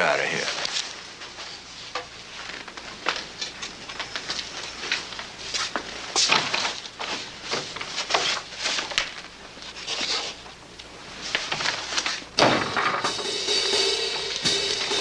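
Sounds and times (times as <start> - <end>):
footsteps: 0.2 - 9.0.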